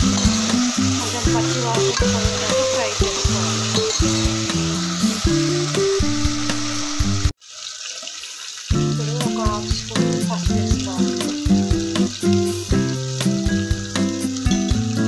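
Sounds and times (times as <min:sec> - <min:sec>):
ladle stirring in pot: 0:00.0 - 0:05.8
background music: 0:00.0 - 0:07.3, 0:08.7 - 0:15.0
onions sizzling in hot oil: 0:00.0 - 0:15.0.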